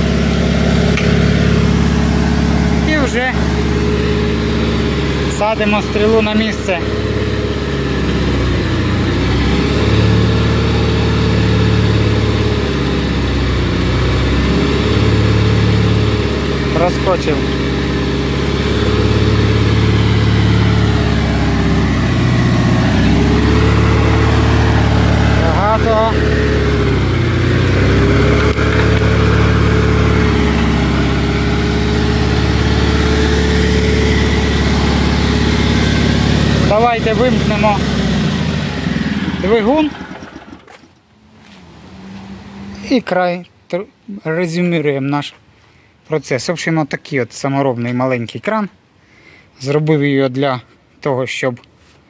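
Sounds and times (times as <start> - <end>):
steady whining tone: 0.0 - 41.0
crane engine running: 0.0 - 41.1.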